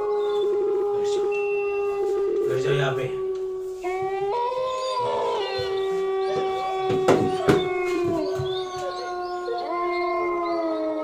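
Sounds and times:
eerie held tones: 0.0s - 6.8s
howl-like wailing cry: 0.0s - 11.0s.

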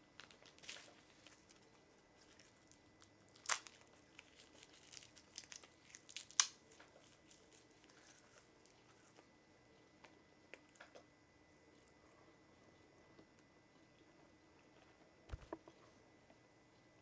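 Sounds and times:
plastic pack crinkling: 0.0s - 9.0s
seaweed sheets crackling torn: 0.2s - 8.5s.

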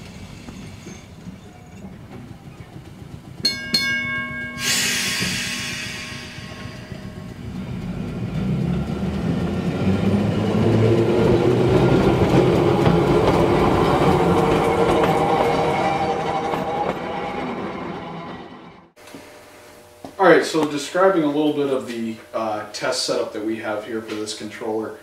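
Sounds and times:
train wheels clacking over rail joints: 0.0s - 17.4s.

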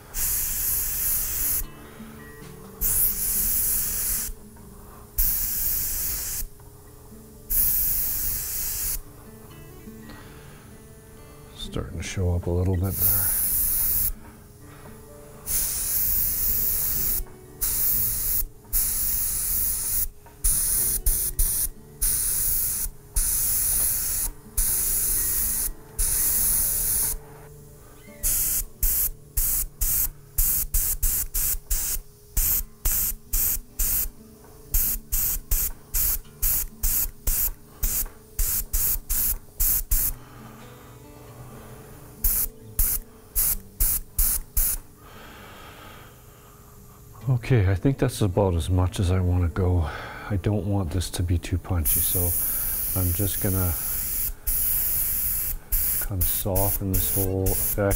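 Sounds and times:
airbrush spraying hiss: 0.0s - 1.8s, 2.8s - 9.1s, 12.8s - 14.6s, 15.4s - 27.5s, 28.1s - 40.2s, 41.8s - 45.0s, 51.8s - 57.9s.

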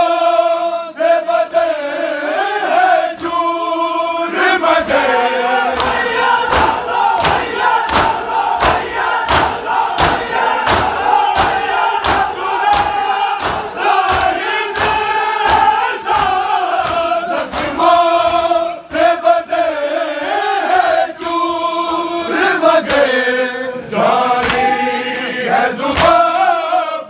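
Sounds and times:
crowd of men chanting: 0.0s - 27.0s
hands slapping chests: 5.6s - 19.2s, 24.4s - 25.3s, 25.9s - 26.3s.

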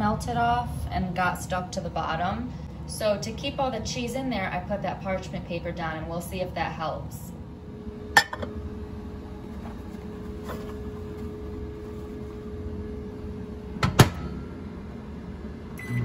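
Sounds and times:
faint steady hum: 0.0s - 16.0s
microwave door shutting clack: 13.8s - 14.4s.

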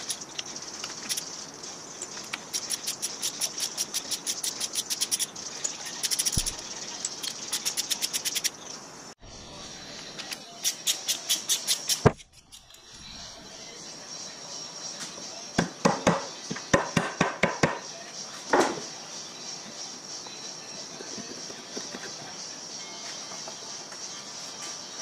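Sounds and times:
socket ratchet clicking: 2.0s - 5.3s, 5.9s - 8.5s, 10.6s - 12.8s.

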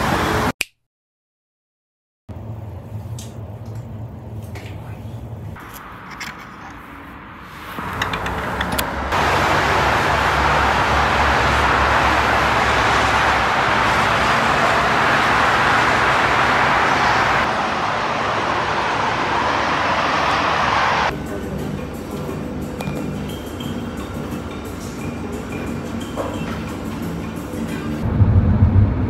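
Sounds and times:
road traffic noise: 0.0s - 0.5s, 2.3s - 29.0s.

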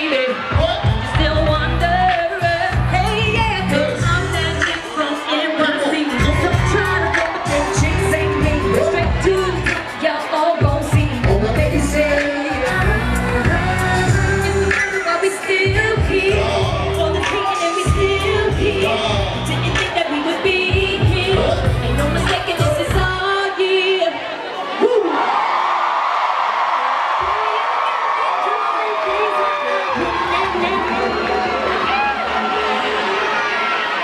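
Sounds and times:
live pop music with singing: 0.0s - 25.3s.

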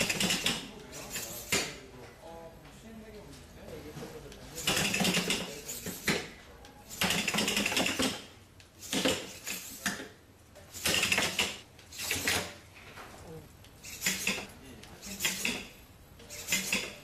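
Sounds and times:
robot servos whirring and buzzing: 13.8s - 17.0s.

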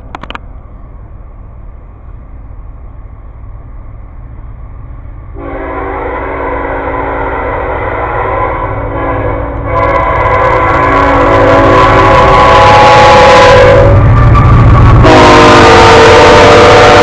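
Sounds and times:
train horn: 5.4s - 17.0s.

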